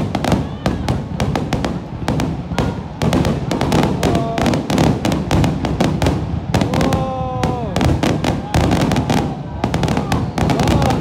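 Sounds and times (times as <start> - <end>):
fireworks bursting: 0.0 - 11.0.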